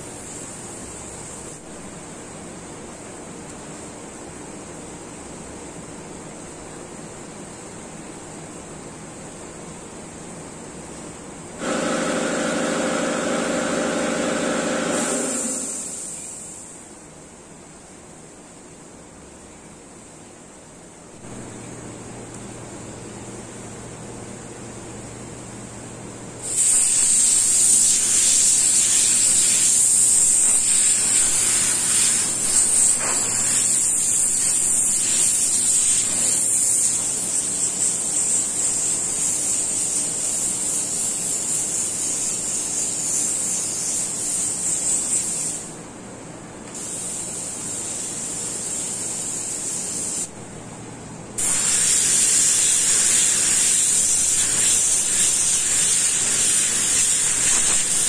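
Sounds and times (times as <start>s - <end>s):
spray gun air hissing: 0.0s - 1.7s, 11.6s - 16.9s, 26.4s - 45.8s, 46.7s - 50.3s, 51.4s - 58.0s.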